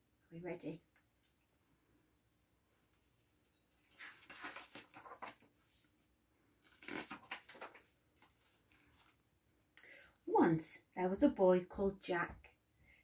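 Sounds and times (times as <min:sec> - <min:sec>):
book pages rustling: 0:03.8 - 0:09.3.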